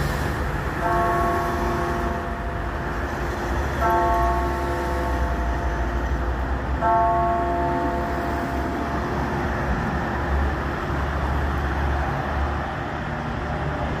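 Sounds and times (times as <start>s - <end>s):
traffic passing on street: 0.0s - 14.0s
tower clock bell ringing: 0.8s - 9.7s.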